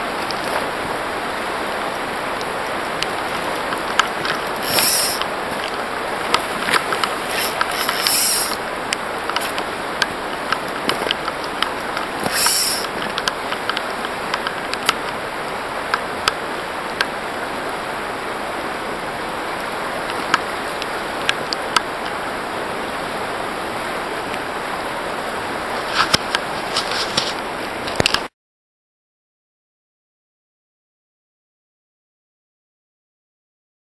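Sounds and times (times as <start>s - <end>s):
river rippling over gravel: 0.0s - 28.3s
brief hisses: 8.1s - 8.6s, 12.3s - 12.8s.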